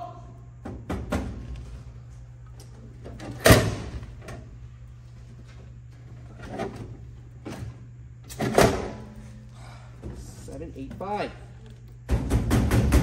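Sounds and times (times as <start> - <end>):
steady low hum: 0.0 - 13.0
vending machine flap knocking: 12.0 - 13.0.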